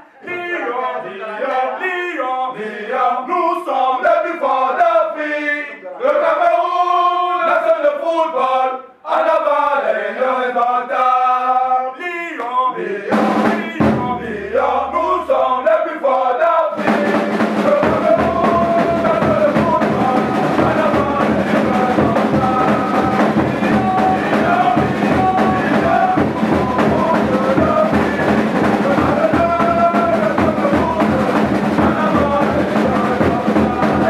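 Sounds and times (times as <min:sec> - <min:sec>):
men singing a chant: 0:00.0 - 0:34.0
drums and instruments playing: 0:13.1 - 0:15.5, 0:16.8 - 0:34.0.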